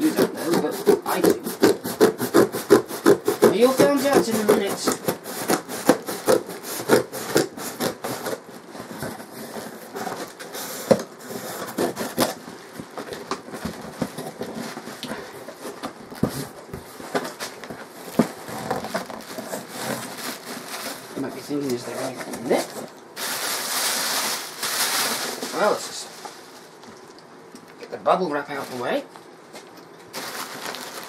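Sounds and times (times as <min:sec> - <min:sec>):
scissors cutting tape and cardboard: 0:00.0 - 0:12.4
plastic packing rustling: 0:00.0 - 0:31.0.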